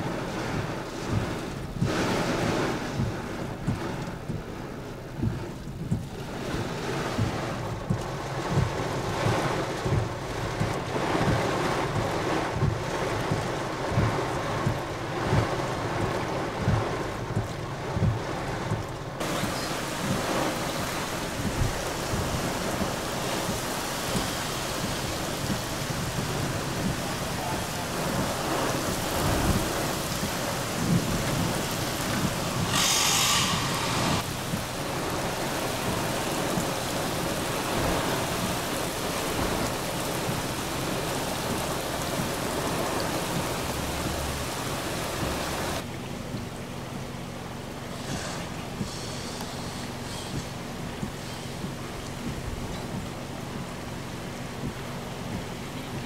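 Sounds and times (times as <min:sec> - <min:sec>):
heavy rain: 0:00.0 - 0:56.0
wind: 0:00.0 - 0:56.0
low thumps: 0:00.5 - 0:38.7.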